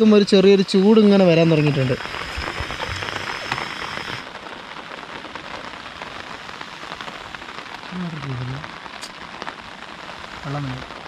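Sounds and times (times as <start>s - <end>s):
higher hiss: 0.0s - 4.2s
heavy rain on tent fabric: 0.0s - 11.0s.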